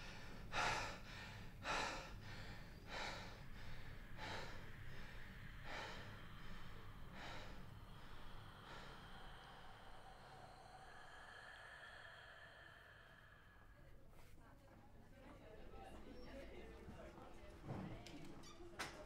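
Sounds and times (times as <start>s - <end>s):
man breathing heavily: 0.0s - 13.8s.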